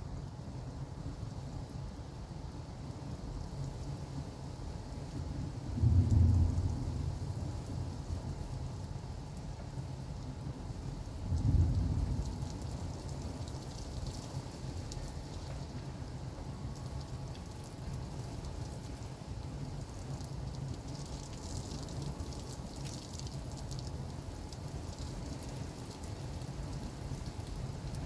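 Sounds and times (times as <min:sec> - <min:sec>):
heavy rain falling: 0:04.4 - 0:28.0
thunder rumble: 0:05.6 - 0:08.8, 0:11.2 - 0:13.4.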